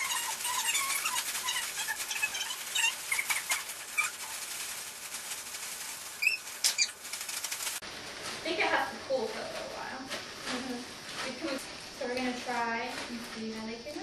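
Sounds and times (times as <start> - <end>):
cereal pieces rattling: 0.0 - 7.8
plastic bags crinkling: 0.0 - 11.6.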